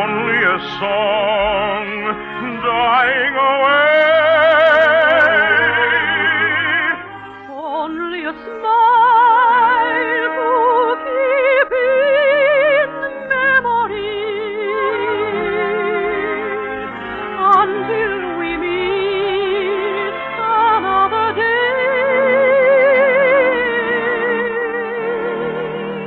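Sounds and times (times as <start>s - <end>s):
orchestra playing: 0.0s - 26.0s
soprano singing with vibrato: 0.0s - 26.0s.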